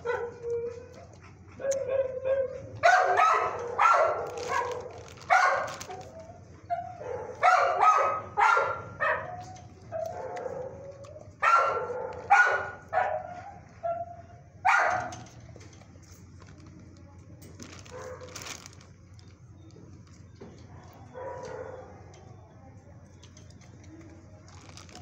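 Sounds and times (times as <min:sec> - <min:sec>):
dog howling and barking: 0:00.0 - 0:15.1.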